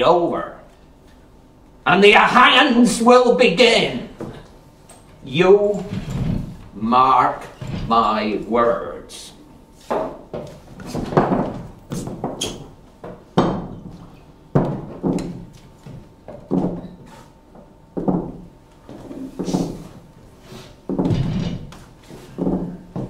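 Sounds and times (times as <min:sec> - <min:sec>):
knocks and thumps in a hall: 0:10.0 - 0:17.0, 0:17.6 - 0:18.5, 0:20.9 - 0:21.8, 0:22.4 - 0:23.0.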